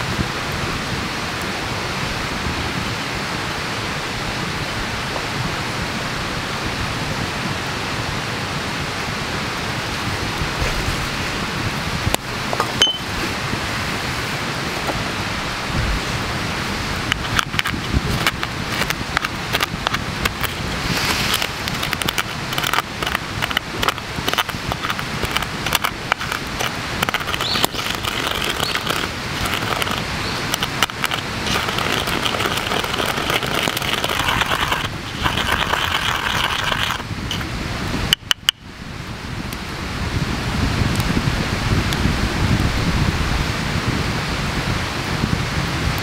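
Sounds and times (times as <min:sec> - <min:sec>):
pestle grinding coffee grounds: 0:17.0 - 0:37.5.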